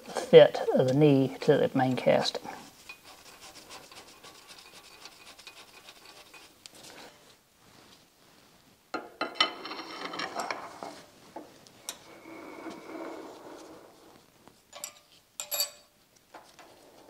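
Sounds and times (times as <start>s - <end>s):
wrench rubbing and ticking: 2.8s - 6.6s
metal scraping and clinking: 9.2s - 11.1s, 11.8s - 17.0s.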